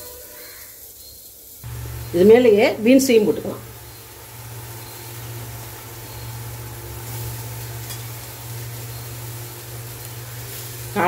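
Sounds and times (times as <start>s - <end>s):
vegetables sizzling in oil: 0.0s - 11.0s
steady low hum: 1.6s - 11.0s
ladle stirring in a pan: 3.6s - 11.0s.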